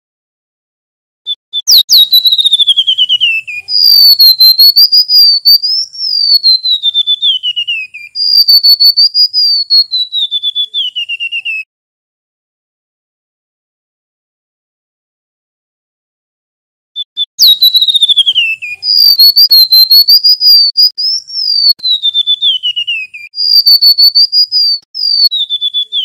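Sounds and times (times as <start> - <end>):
bird singing high whistles: 1.3 - 11.7, 17.0 - 26.0.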